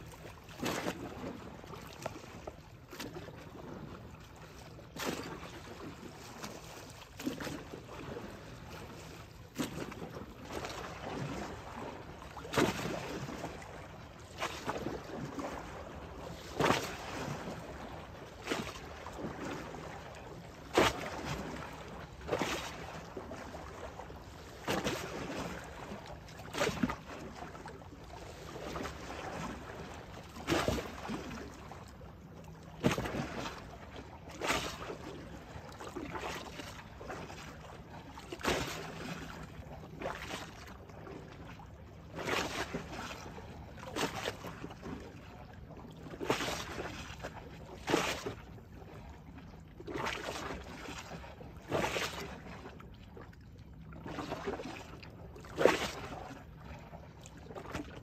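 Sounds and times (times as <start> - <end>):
river waves lapping: 0.0 - 58.0.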